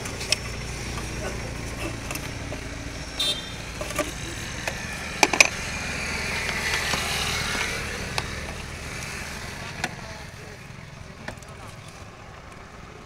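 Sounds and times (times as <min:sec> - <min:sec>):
traffic noise: 0:00.0 - 0:13.0.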